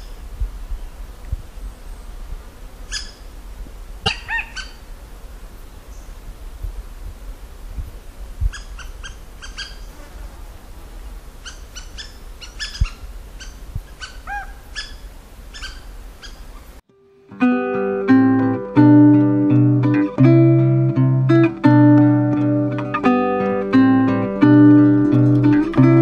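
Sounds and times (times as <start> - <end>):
birds chirping: 4.0 - 4.8, 8.4 - 10.0, 11.4 - 16.8
plucked acoustic guitar music: 16.9 - 26.0.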